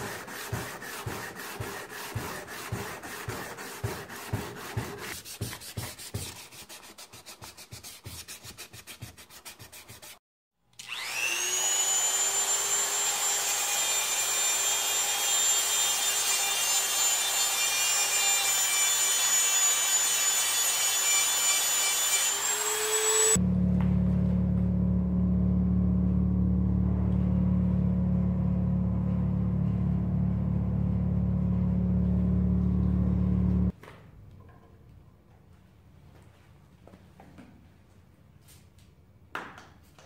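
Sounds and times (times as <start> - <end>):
hand sanding steel blade: 0.0 - 10.2.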